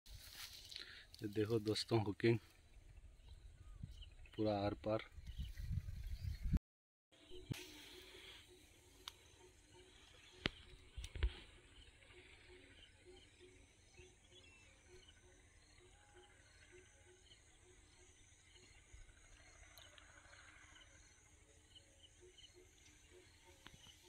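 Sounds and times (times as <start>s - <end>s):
repeated insect calls: 7.3s - 24.0s.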